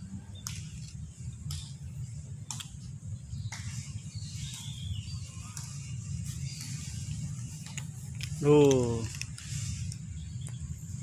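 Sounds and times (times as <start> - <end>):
cats crunching dry kibble: 7.6 - 10.0.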